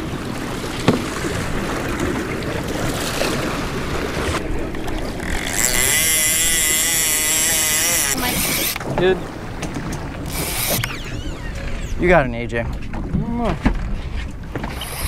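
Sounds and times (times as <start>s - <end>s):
water sloshing against boat: 0.0s - 15.0s
wind on microphone: 0.0s - 15.0s
wavering pitched hum: 10.2s - 13.2s.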